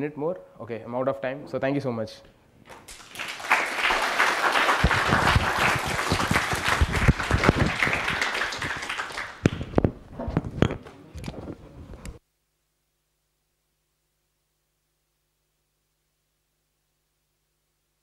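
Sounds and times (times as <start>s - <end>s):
audience applauding: 2.7s - 9.9s.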